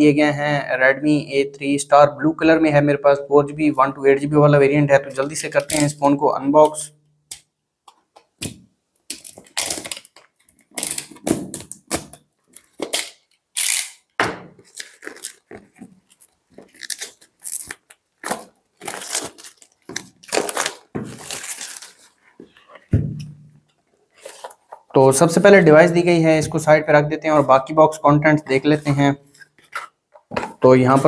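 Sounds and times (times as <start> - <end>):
knife slitting plastic wrap: 9.1 - 15.5, 16.1 - 22.2
plastic wrap crinkling and tearing: 9.1 - 22.7.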